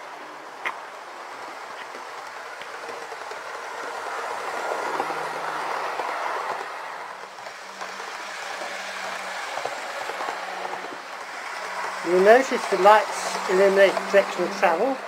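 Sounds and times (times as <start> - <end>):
model train wheels rattling on rails: 0.0 - 15.0.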